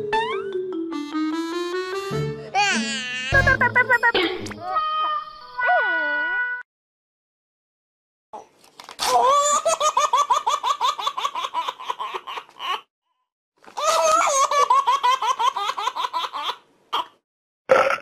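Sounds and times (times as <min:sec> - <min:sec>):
high-pitched childlike giggling: 0:02.6 - 0:04.2.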